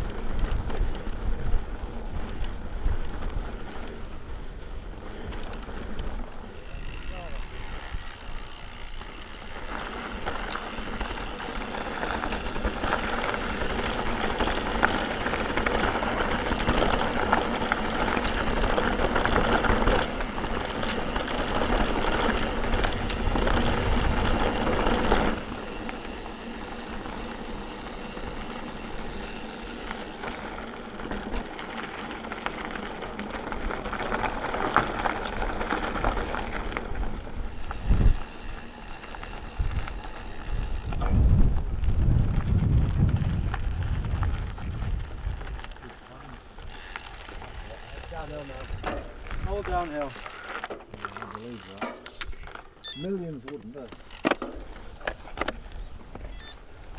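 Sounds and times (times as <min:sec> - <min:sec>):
bike rattling: 0:00.0 - 0:56.9
bike tyres rumbling: 0:00.0 - 0:56.9
wind on microphone: 0:37.7 - 0:38.3, 0:39.6 - 0:45.6.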